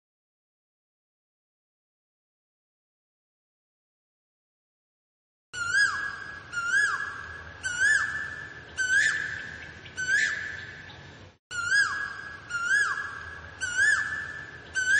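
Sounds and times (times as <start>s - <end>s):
bird calling with whistled notes: 5.6s - 14.9s.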